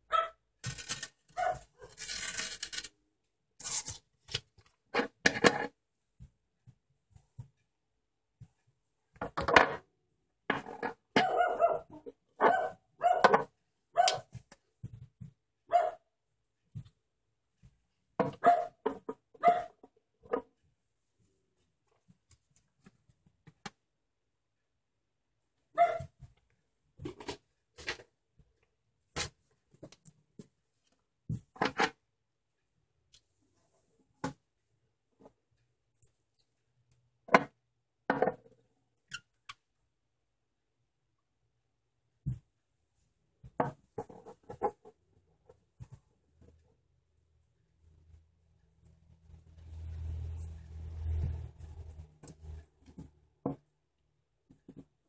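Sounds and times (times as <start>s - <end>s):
dog barking: 0.1s - 0.4s, 1.4s - 1.9s, 11.2s - 14.3s, 15.7s - 16.1s, 18.3s - 18.8s, 19.4s - 19.8s, 25.7s - 26.1s.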